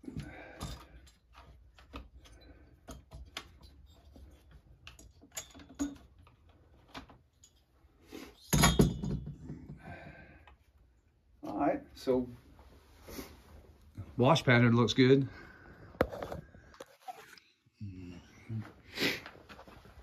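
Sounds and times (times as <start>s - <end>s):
metal clicks and rattles: 0.6s - 7.7s.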